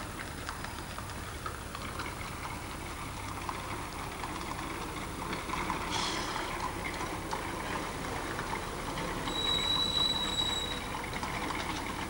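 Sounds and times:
horse hooves clopping on road: 0.0s - 5.9s, 10.7s - 12.0s
brief hiss: 5.9s - 6.5s.

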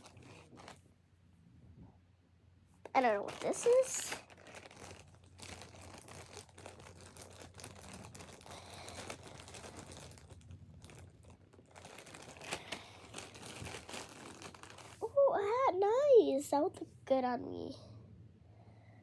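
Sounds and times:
plastic toys rustling and clicking: 0.0s - 0.8s, 2.9s - 15.0s.

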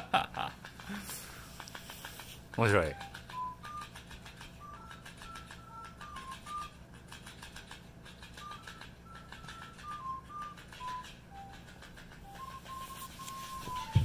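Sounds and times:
beeping tune: 8.4s - 14.0s.

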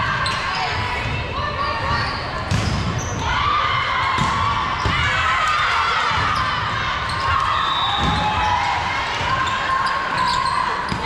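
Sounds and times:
volleyball thumping: 4.1s - 5.2s.

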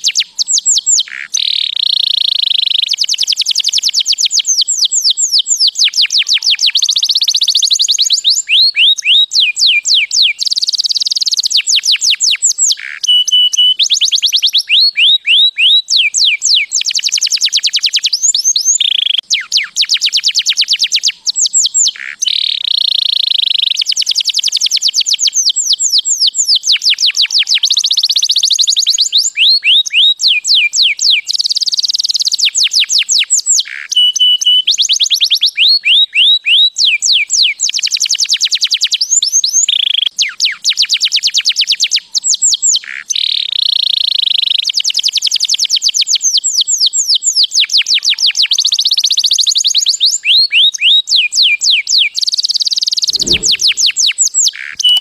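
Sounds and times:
canary singing trills: 0.0s - 24.2s, 50.2s - 55.0s.

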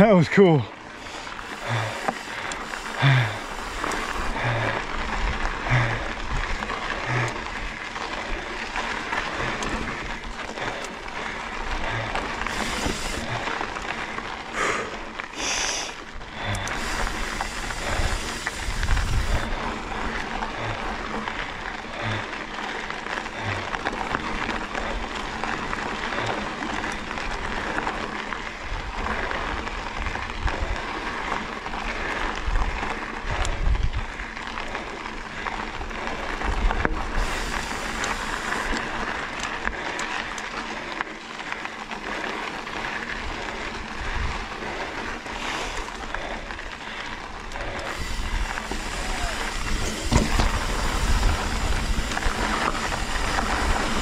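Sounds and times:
bike tyres grinding on dirt: 0.0s - 54.0s
wind on microphone: 16.5s - 19.6s, 47.9s - 54.0s
bike thumping over bumps: 48.5s - 54.0s.

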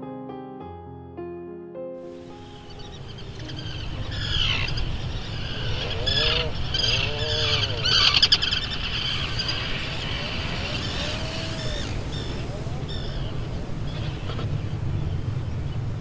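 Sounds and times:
birds chirping and calling: 2.4s - 15.2s
steady low rumble: 3.1s - 16.0s.

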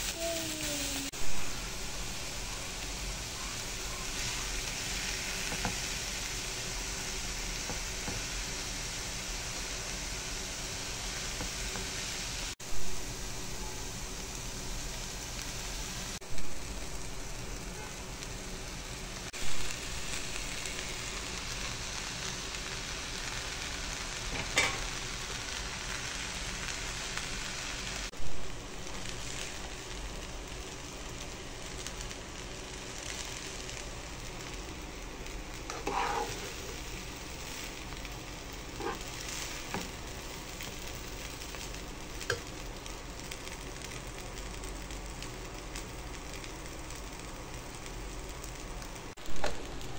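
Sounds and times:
rice sizzling in a pan: 0.0s - 49.9s
spoon scraping a pan: 35.7s - 36.8s, 38.8s - 39.9s.

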